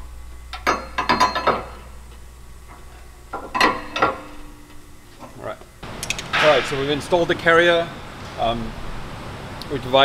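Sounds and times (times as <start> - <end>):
metal parts clinking: 2.7 - 5.4.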